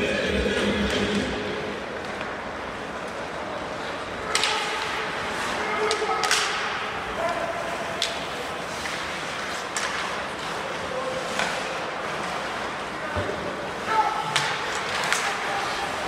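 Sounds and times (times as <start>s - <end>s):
crowd chatter: 0.0s - 16.0s
hockey sticks striking puck: 4.3s - 6.9s, 8.0s - 12.4s, 14.2s - 16.0s
skate blades scraping ice: 7.8s - 13.0s.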